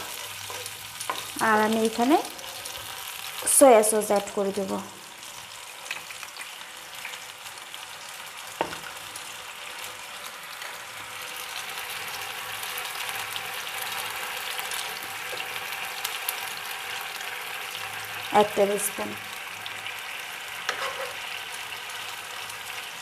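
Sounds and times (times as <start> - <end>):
spatula stirring in pan: 0.0 - 3.5, 20.6 - 21.4
sauce sizzling in a frying pan: 0.0 - 23.0.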